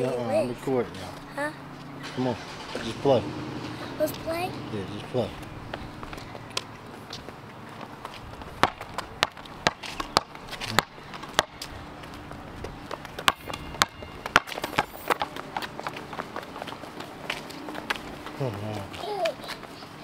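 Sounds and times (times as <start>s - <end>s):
footsteps on concrete: 5.0s - 20.0s.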